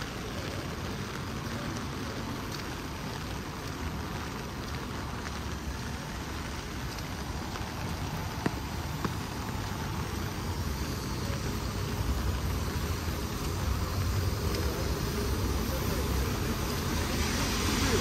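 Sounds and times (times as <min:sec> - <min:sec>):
heavy rain falling: 0:00.0 - 0:18.0.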